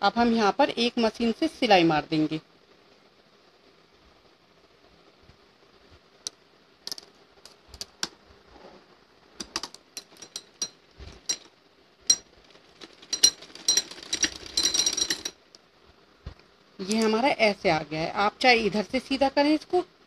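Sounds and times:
sewing machine stitching: 0:12.8 - 0:15.3.

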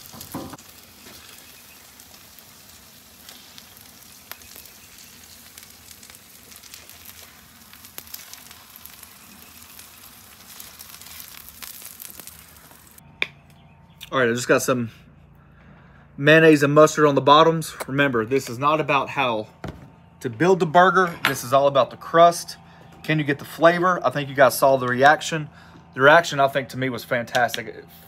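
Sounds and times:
burger patties sizzling on griddle: 0:00.0 - 0:13.0.

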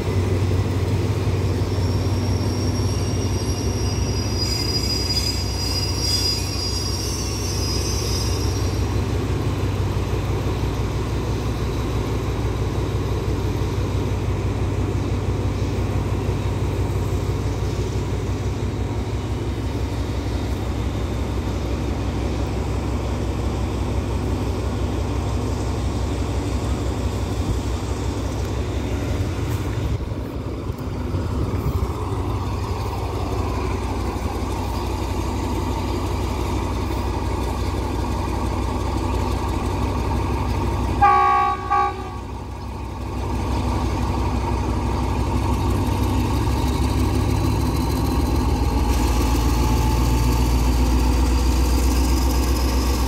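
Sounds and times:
diesel engine rumble: 0:00.0 - 0:53.0
locomotive horn blast: 0:41.0 - 0:42.4.

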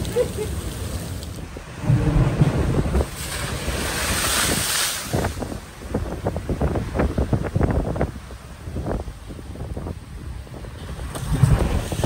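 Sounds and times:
waves crashing against a wall: 0:00.0 - 0:08.2, 0:10.6 - 0:12.0
wind buffeting the microphone: 0:00.0 - 0:12.0.

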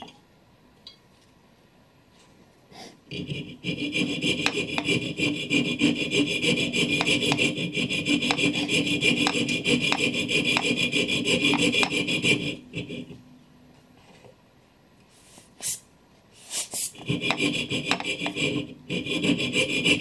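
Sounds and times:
saw rasping through brass: 0:03.1 - 0:13.1, 0:17.1 - 0:20.0.

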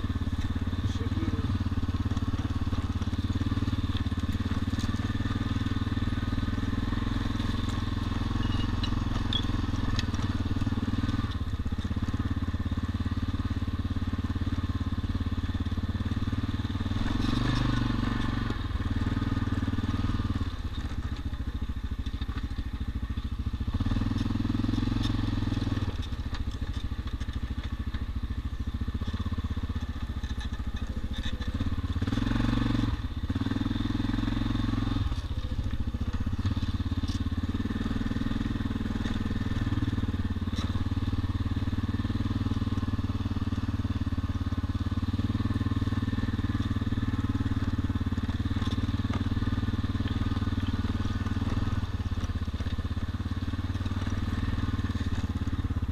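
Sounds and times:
tyres crunching over stones: 0:00.0 - 0:12.7, 0:24.0 - 0:55.9
atv engine running: 0:00.0 - 0:55.9.

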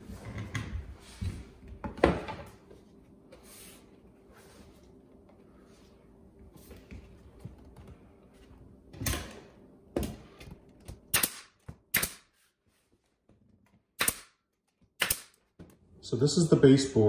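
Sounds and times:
nail gun shots: 0:11.1 - 0:12.3, 0:14.0 - 0:14.4, 0:15.0 - 0:15.4.

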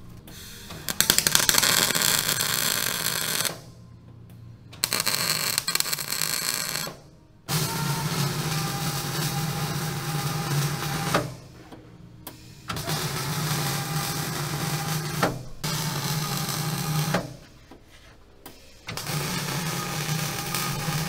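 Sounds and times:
welding arc crackling: 0:00.7 - 0:03.7, 0:04.8 - 0:11.4, 0:12.7 - 0:17.4, 0:18.9 - 0:21.0.

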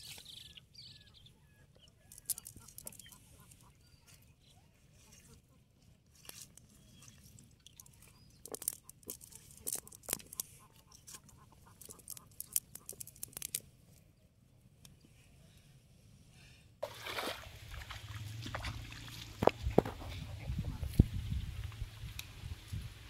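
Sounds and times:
outdoor background noise: 0:00.0 - 0:23.0.

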